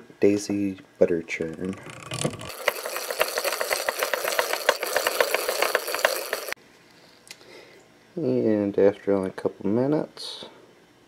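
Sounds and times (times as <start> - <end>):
butter churn gears rattling: 1.4 - 6.6.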